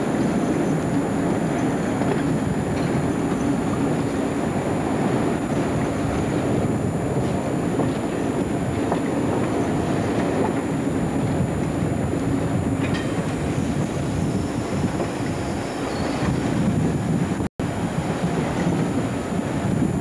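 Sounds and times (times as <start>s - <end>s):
train wheels rumbling on track: 0.0s - 20.0s
faint wheel squeal: 14.2s - 16.4s.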